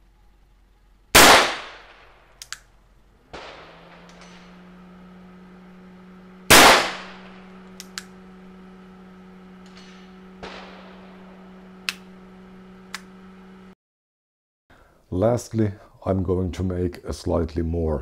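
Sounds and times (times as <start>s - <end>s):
steady low hum: 0.0s - 13.8s
revolver shot: 1.2s - 13.3s
light clicks: 2.4s - 2.7s
faint bang: 3.3s - 5.0s.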